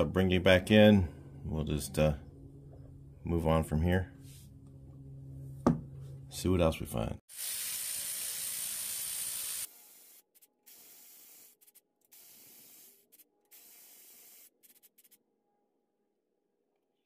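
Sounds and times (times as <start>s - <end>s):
cordless electric ratchet running: 7.3s - 14.5s.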